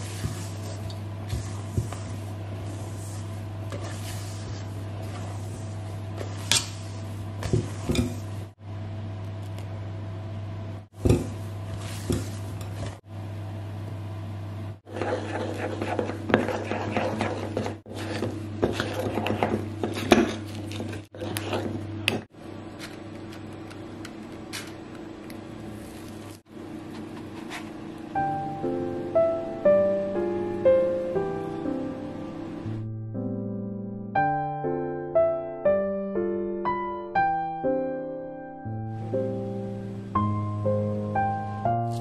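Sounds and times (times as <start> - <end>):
whisk scraping metal bowl: 0.0 - 8.4, 11.7 - 13.0, 14.8 - 22.3.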